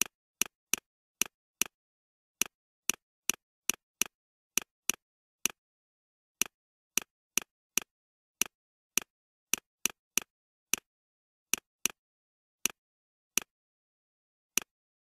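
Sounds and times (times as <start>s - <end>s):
computer mouse clicking: 14.5s - 14.8s.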